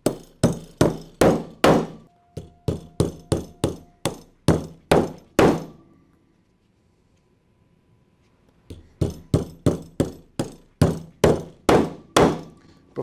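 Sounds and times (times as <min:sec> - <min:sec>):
hammer striking metal rivets: 0:00.0 - 0:05.8, 0:08.7 - 0:12.6.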